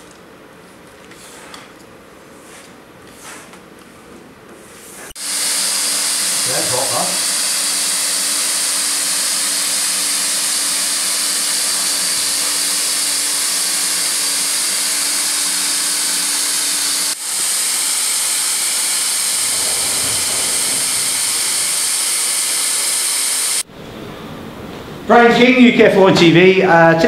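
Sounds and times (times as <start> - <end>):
hot air gun hissing: 5.2 - 23.6
low hum: 17.4 - 24.8.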